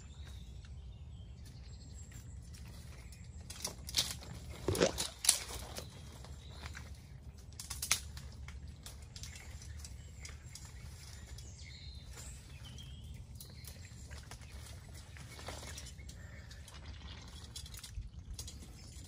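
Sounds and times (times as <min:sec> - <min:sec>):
faint bird chirps: 0:08.7 - 0:19.0.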